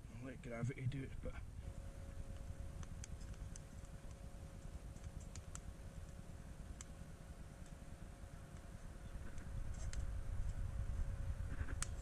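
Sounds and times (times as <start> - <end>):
faint steady hum: 0.0 - 12.0
wood fire crackling and popping: 2.2 - 7.0.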